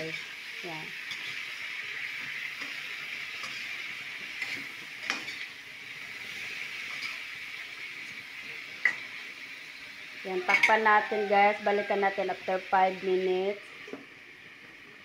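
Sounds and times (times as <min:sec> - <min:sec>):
tofu sizzling in a wok: 0:00.0 - 0:15.0
metal spatula scraping a pan: 0:01.0 - 0:07.3, 0:10.4 - 0:12.1.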